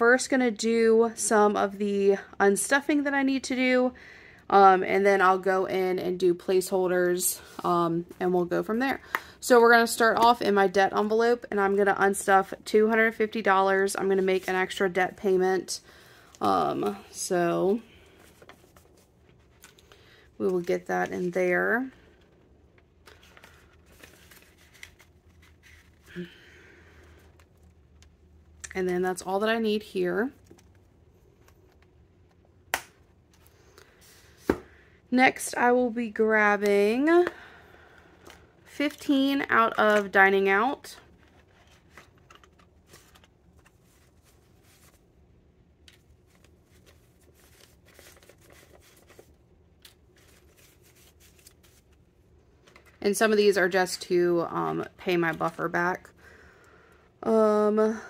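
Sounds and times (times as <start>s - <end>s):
paper banknotes rustling: 17.6s - 22.3s, 23.0s - 27.6s, 38.1s - 45.1s, 45.9s - 53.0s
plastic envelope pocket handled: 18.0s - 26.4s, 40.9s - 45.2s, 45.8s - 53.0s.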